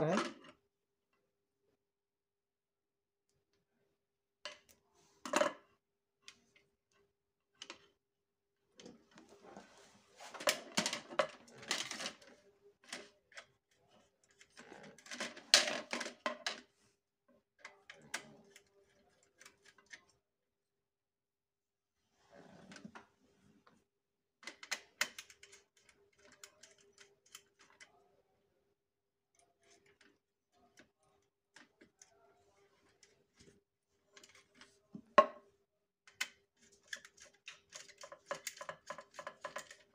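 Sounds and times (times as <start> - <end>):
plastic board rattling and clicking: 10.4 - 13.5, 14.3 - 16.6, 24.4 - 27.9, 36.1 - 39.9.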